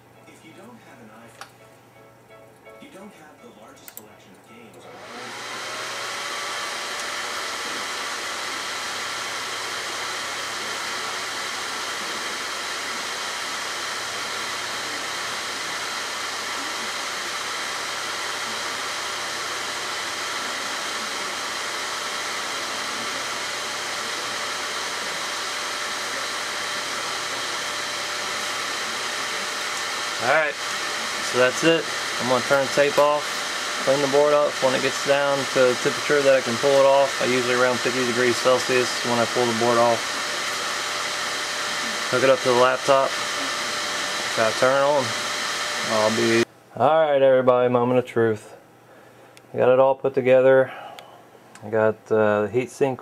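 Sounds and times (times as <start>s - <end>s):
cooling fan blowing air: 4.8s - 46.5s.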